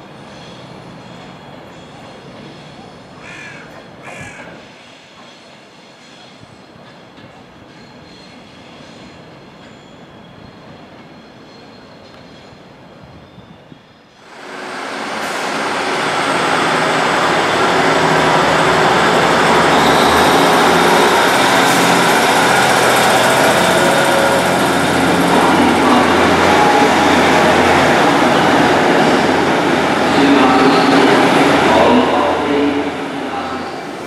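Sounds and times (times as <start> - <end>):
faint electric train approaching: 0.0 - 34.0
diesel train engine: 14.2 - 34.0.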